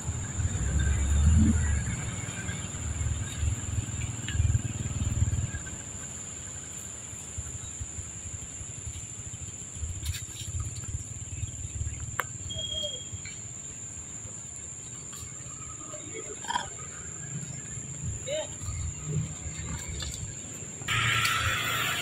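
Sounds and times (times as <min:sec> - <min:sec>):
wind rumbling on microphone: 0:00.0 - 0:06.0
high insect drone: 0:00.0 - 0:22.0.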